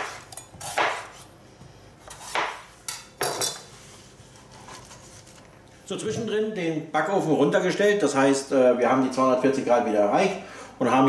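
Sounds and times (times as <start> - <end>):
knife slicing on cutting board: 0.0 - 1.3, 2.0 - 2.7.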